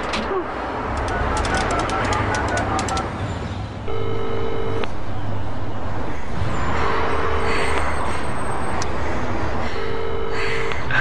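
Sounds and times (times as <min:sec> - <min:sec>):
telephone ringing tone: 0:03.9 - 0:04.9, 0:09.8 - 0:10.7.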